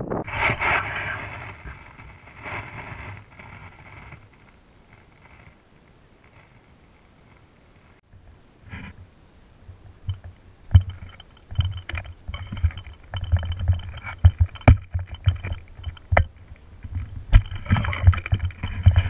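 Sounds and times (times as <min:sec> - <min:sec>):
footsteps on rocky dirt trail: 0:10.2 - 0:19.0.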